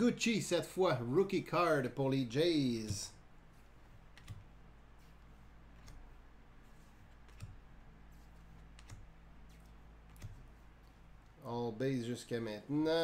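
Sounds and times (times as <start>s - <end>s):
low steady hum: 0.0s - 13.0s
trading cards clicking: 4.1s - 4.5s, 7.2s - 7.6s, 8.6s - 10.5s.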